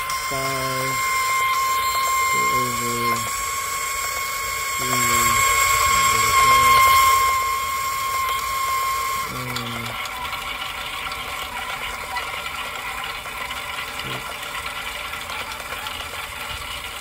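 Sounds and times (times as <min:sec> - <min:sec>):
mechanical whine: 0:00.0 - 0:17.0.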